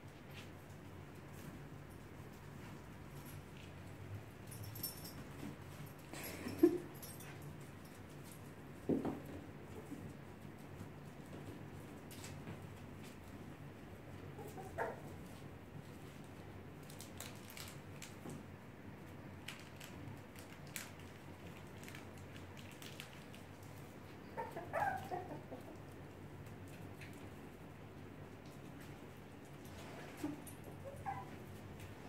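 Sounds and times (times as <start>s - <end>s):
puppies yipping and whimpering: 24.3s - 25.7s, 30.3s - 31.5s.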